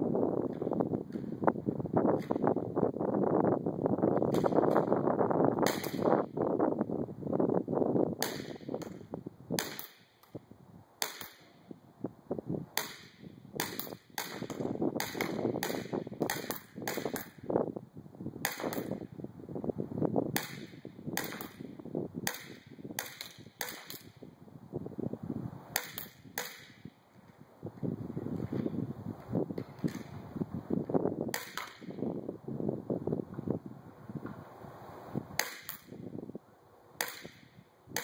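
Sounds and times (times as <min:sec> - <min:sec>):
airsoft pistol shots: 0:05.6 - 0:06.1, 0:08.2 - 0:09.0, 0:09.6 - 0:10.1, 0:11.0 - 0:11.5, 0:12.8 - 0:17.4, 0:18.4 - 0:19.0, 0:20.4 - 0:21.6, 0:22.2 - 0:24.1, 0:25.7 - 0:26.8, 0:31.3 - 0:32.0, 0:35.4 - 0:36.0, 0:37.0 - 0:38.0.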